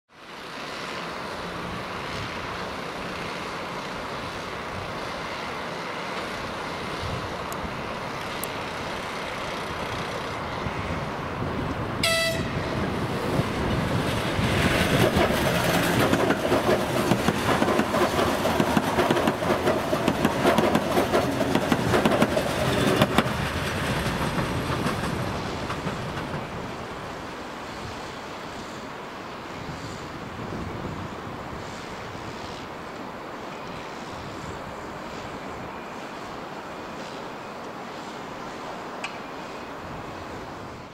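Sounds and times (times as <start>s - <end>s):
electric train passing: 0.2s - 40.9s
train horn toot: 12.0s - 12.7s
wheels clattering over rail joints: 12.8s - 27.8s.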